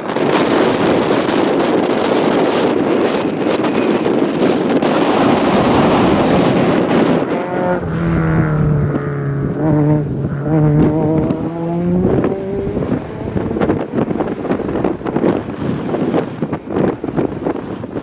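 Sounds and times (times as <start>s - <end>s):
wind rumble on microphone: 0.0s - 18.0s
rally car engine at high revs: 4.8s - 17.3s.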